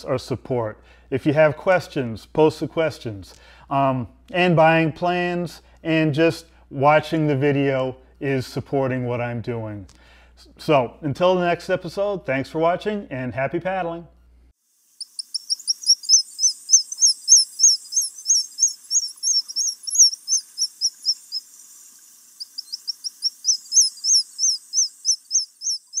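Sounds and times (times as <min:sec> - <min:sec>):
bird chirping: 0:15.0 - 0:26.0.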